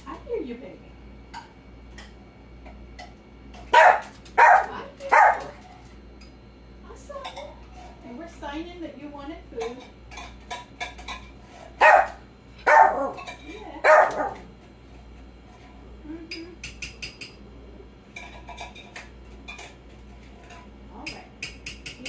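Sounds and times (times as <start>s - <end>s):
dog barking: 3.7s - 5.6s, 11.8s - 14.5s.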